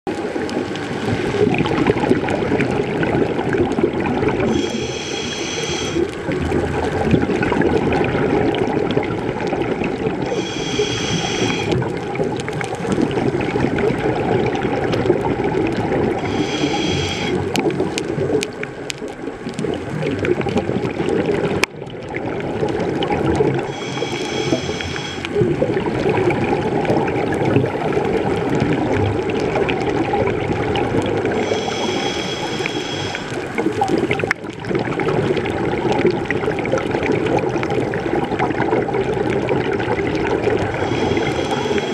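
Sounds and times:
underwater bubbling rumble: 0.1 - 41.9
regulator whistling hiss: 4.5 - 6.0, 10.3 - 11.7, 16.3 - 17.3, 23.7 - 25.2, 31.5 - 33.3.

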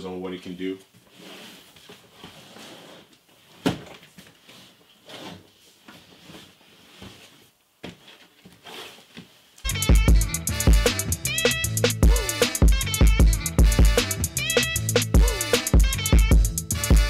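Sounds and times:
cardboard scraping and rubbing: 1.0 - 9.6.

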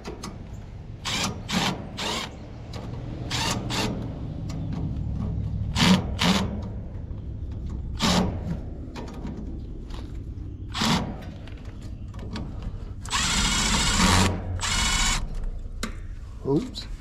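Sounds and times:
low steady hum: 1.9 - 17.0
cordless power tool bursts: 13.1 - 15.2.

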